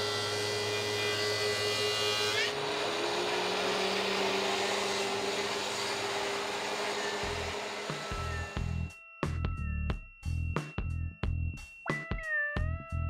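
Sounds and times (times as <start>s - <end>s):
thickness planer whining: 0.0s - 8.8s
music with low beats: 8.6s - 13.0s.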